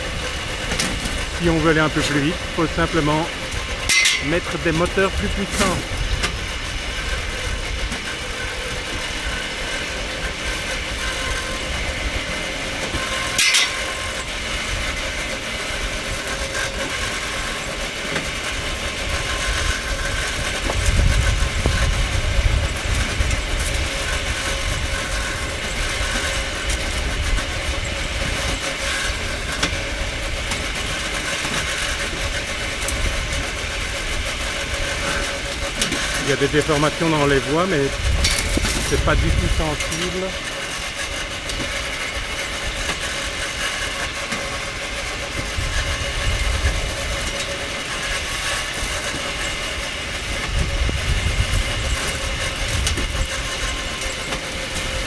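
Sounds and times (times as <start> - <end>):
motor hum: 0.0 - 55.0
wheels running on rail: 0.0 - 55.0
heavy low rumble: 36.2 - 40.4.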